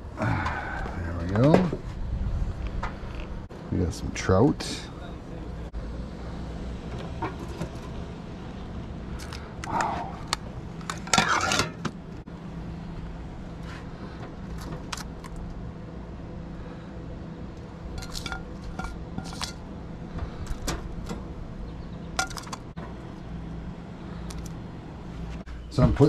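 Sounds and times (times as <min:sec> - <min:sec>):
low hum: 0:00.0 - 0:26.0
metal tongs scraping grill grate: 0:10.8 - 0:11.9, 0:17.9 - 0:19.7.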